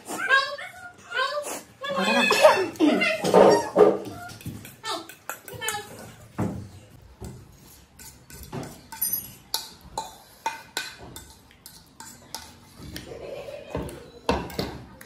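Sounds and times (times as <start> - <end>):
metal spoon scraping ceramic bowl: 7.5 - 10.4.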